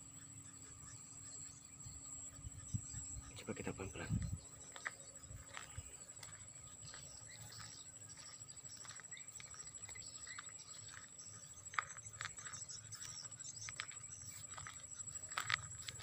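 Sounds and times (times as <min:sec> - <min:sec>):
footsteps on dirt path: 0:03.9 - 0:16.0.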